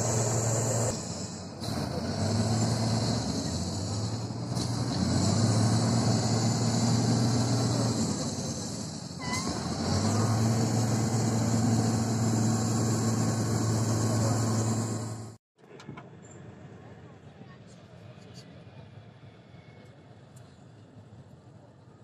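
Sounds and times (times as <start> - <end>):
truck engine running under load: 0.0 - 15.4
short high squeal: 9.2 - 9.7.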